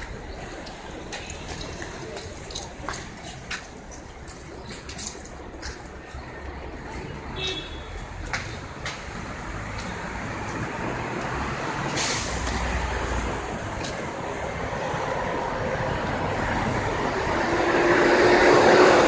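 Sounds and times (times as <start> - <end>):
truck engine and tyre rumble: 0.0 - 19.0
air brake hiss: 11.9 - 12.6.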